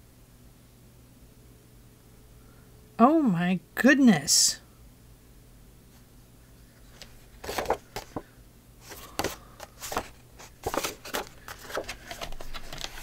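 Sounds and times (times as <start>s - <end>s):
paper rustling: 6.8s - 13.0s.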